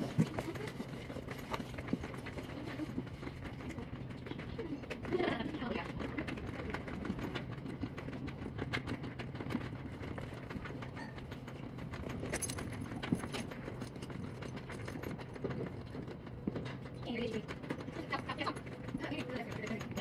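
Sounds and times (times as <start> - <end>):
horse tack clicks and knocks: 6.3 - 20.0
buckles jingling: 11.7 - 17.0.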